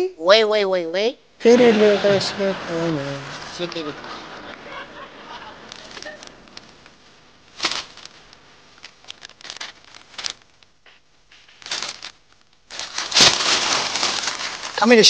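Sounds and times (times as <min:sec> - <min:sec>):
newspaper rustling and crinkling: 0:07.5 - 0:10.6, 0:11.3 - 0:15.0.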